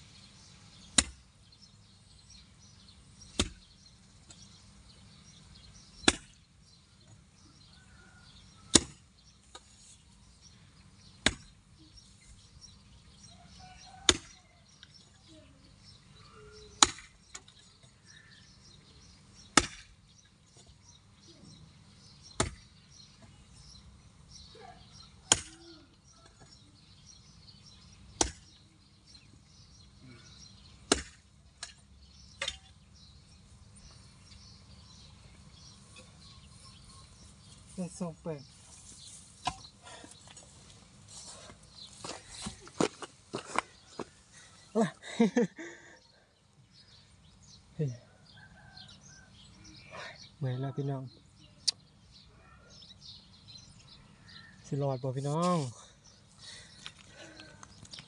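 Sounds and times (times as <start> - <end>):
digging tool chopping hard ground: 0.9 - 1.2, 3.3 - 3.7, 6.0 - 6.4, 8.7 - 9.0, 11.2 - 11.6, 16.8 - 17.1, 19.5 - 19.9, 22.4 - 22.7, 25.3 - 25.6, 28.2 - 28.4, 30.9 - 31.8.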